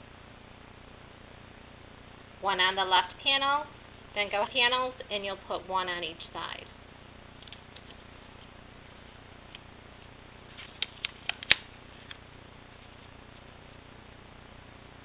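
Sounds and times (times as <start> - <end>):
faint room hiss: 0.0 - 15.0
paper clicks and taps: 10.6 - 11.6.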